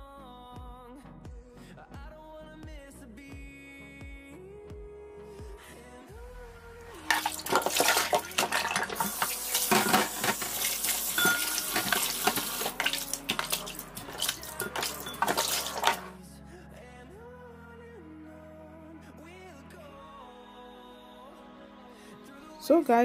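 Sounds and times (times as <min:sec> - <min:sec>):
quiet background music: 0:00.0 - 0:23.0
tap water splashing into basin: 0:07.0 - 0:16.1.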